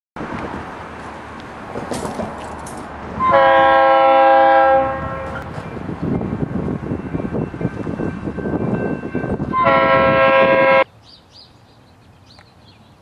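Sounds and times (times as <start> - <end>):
locomotive air horn blast: 3.2 - 5.5, 9.5 - 10.8.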